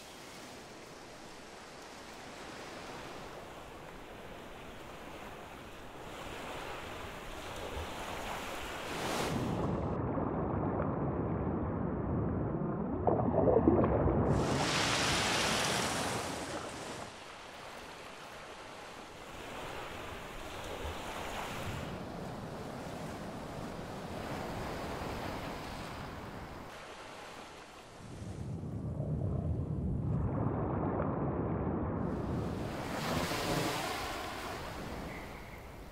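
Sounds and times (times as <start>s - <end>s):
wind: 0.0s - 35.9s
underwater bubbling rush: 9.6s - 16.8s
water rushing: 13.0s - 18.2s
ocean surf: 13.8s - 28.6s, 32.1s - 35.9s.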